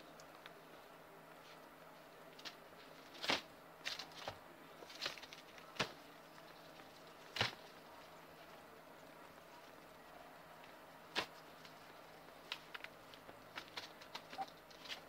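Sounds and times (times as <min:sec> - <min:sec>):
guinea pigs rustling in paper bedding: 0:00.4 - 0:15.0.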